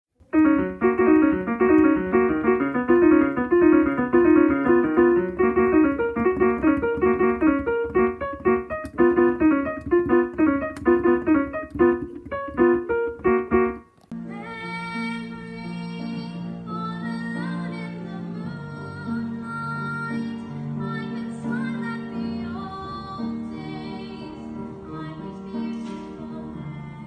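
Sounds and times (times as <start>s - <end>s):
fast keyboard piano run: 0.2s - 14.1s.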